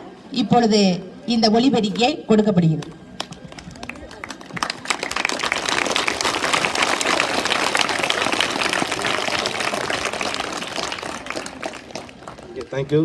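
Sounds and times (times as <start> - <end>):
group applauding: 3.2 - 13.0.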